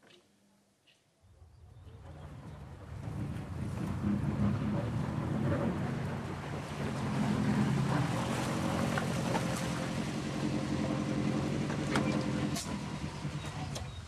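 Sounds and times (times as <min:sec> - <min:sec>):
car engine running at low speed: 0:02.0 - 0:14.0.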